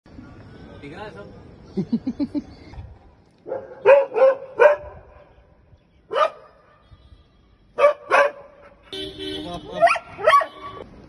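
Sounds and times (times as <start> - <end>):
dog barking: 3.4 - 5.0, 6.1 - 6.6, 7.8 - 8.8, 9.8 - 10.8.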